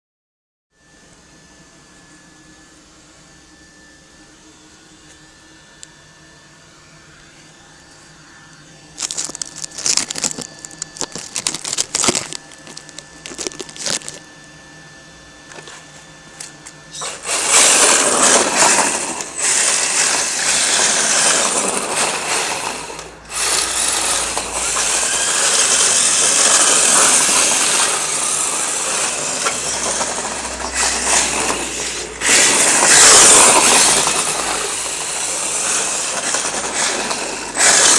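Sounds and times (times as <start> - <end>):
rc car tyres sliding on concrete: 17.0 - 37.9.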